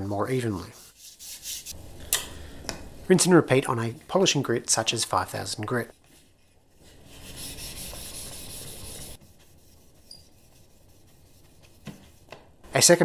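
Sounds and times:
steel scraper rubbing on whetstone: 0:07.0 - 0:11.8.

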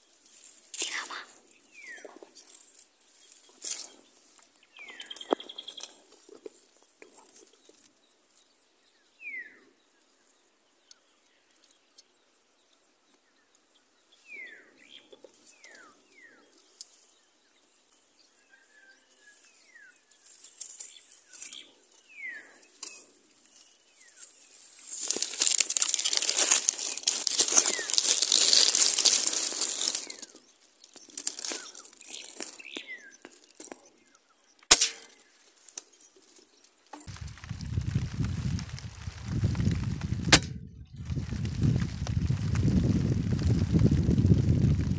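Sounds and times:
rustling of dry grass and leaves: 0:00.0 - 0:44.9
falling whistled bird calls: 0:04.7 - 0:05.9.

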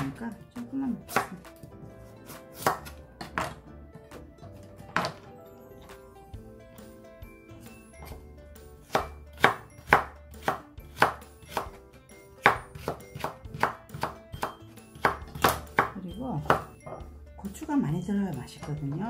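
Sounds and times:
knife chopping on wooden board: 0:01.1 - 0:05.2, 0:08.0 - 0:08.2, 0:08.8 - 0:11.8, 0:12.4 - 0:17.0.

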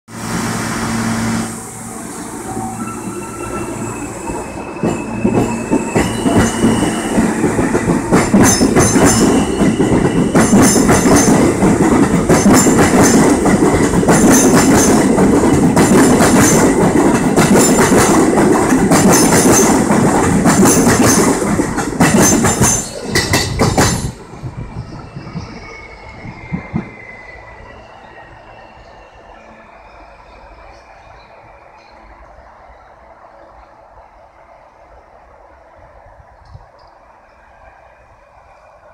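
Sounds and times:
train rumbling past: 0:00.1 - 0:38.9
subway train motor hum and whine: 0:00.2 - 0:08.1.

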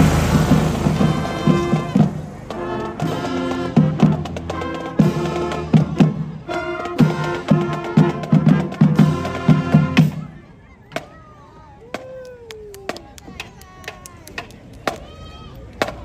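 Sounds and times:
drum strikes: 0:00.0 - 0:10.1
marching band playing: 0:00.0 - 0:11.2.

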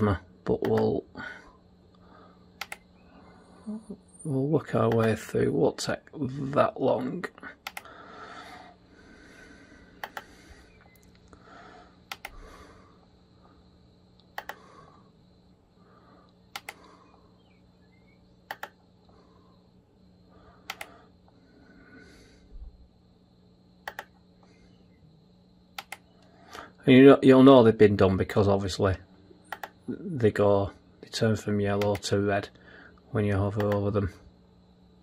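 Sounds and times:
low steady hum: 0:00.0 - 0:35.0
mouse button clicks: 0:23.8 - 0:24.1.

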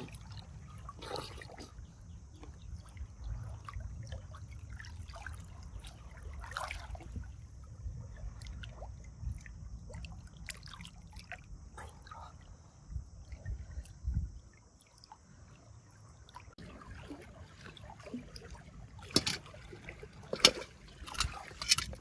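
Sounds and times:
small splashes and clicks: 0:16.3 - 0:22.0.

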